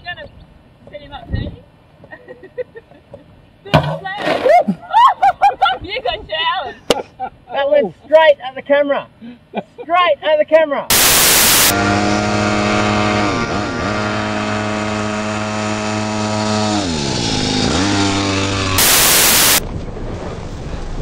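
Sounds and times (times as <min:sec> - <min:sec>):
tv static hiss: 0:10.9 - 0:11.7, 0:18.8 - 0:19.6
small engine buzzing: 0:10.9 - 0:19.6.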